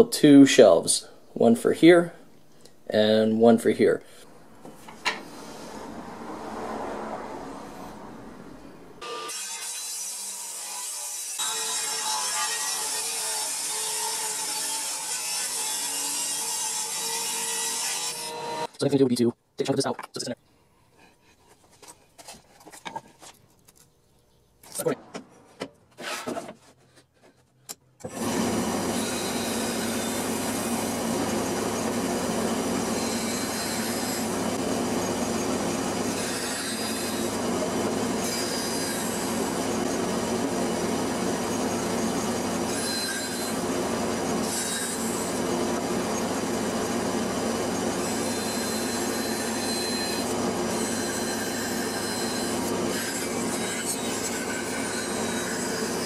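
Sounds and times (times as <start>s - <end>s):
bandsaw cutting plywood: 9.0s - 18.7s, 28.0s - 56.0s.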